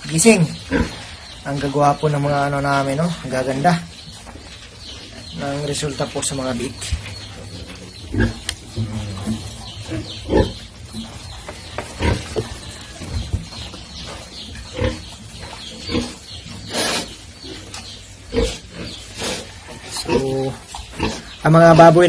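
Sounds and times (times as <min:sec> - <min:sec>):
piglets grunting: 0:05.2 - 0:11.0, 0:14.2 - 0:22.0.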